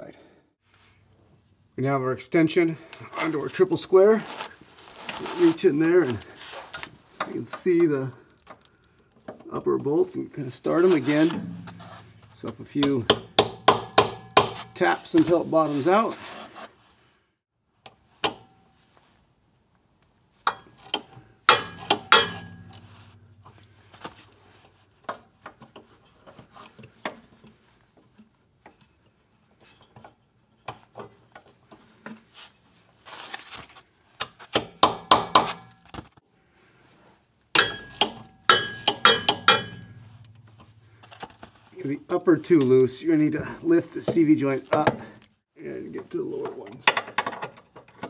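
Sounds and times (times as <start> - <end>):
hand ratchet clicking: 20.5 - 22.9, 37.6 - 40.5
metal tools clinking: 20.5 - 23.7, 37.6 - 41.4.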